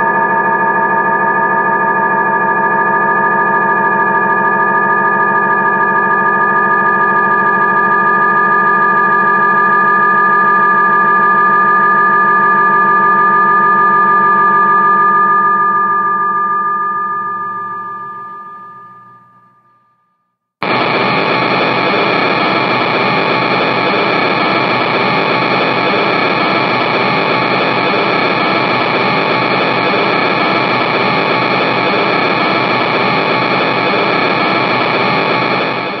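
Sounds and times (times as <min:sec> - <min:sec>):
electronic tone: 0:00.0 - 0:36.0
radio static hiss: 0:20.6 - 0:36.0.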